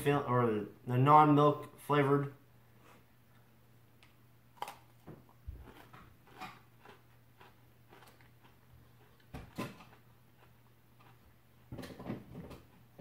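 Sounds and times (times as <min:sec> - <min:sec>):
low steady hum: 0:00.0 - 0:13.0
cookie crunching: 0:04.0 - 0:11.9.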